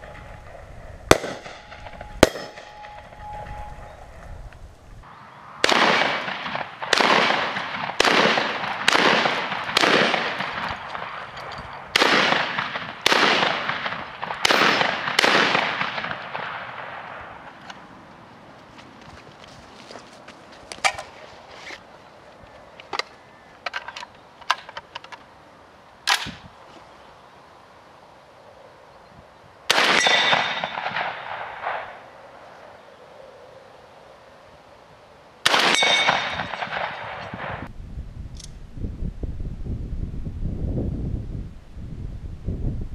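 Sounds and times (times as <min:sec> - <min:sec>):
shotgun shots echoing: 0:01.1 - 0:03.8, 0:05.5 - 0:17.6, 0:29.7 - 0:32.1, 0:35.4 - 0:37.7
metallic clicks handling gun: 0:22.8 - 0:25.3.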